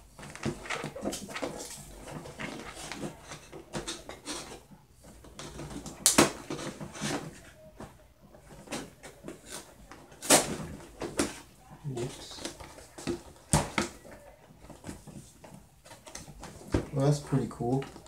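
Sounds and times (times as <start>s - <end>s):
sharp cardboard crack: 9.4s - 11.3s.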